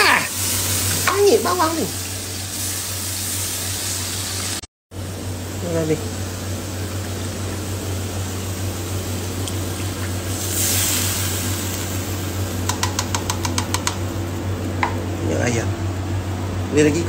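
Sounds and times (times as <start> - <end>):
steady low hum: 4.9 - 17.0.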